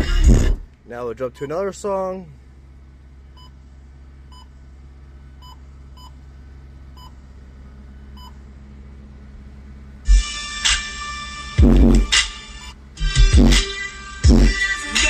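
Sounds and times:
low hum of running car: 0.0s - 15.0s
car stereo key beeps: 1.3s - 1.6s.

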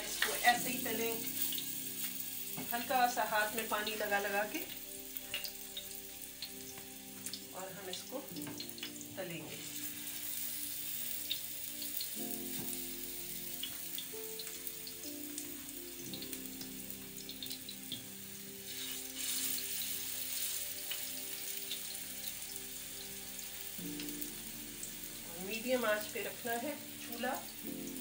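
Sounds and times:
background music with held notes: 0.0s - 28.0s
patties sizzling in oil: 0.0s - 28.0s.

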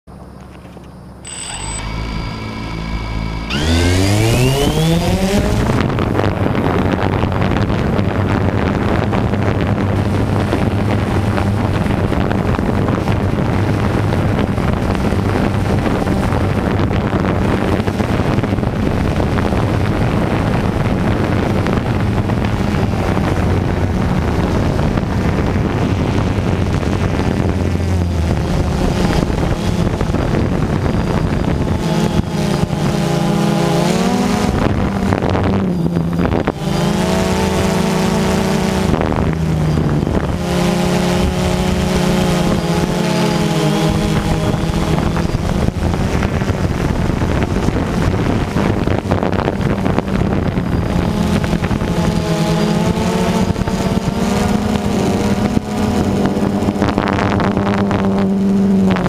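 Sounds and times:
drone motors whining: 0.5s - 6.3s, 17.7s - 57.3s
drone propeller buzz: 1.2s - 7.7s, 8.3s - 59.0s.

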